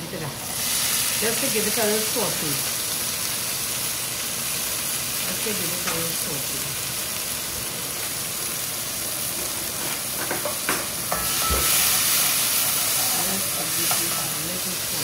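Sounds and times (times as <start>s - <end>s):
vegetables sizzling in hot oil: 0.0s - 15.0s.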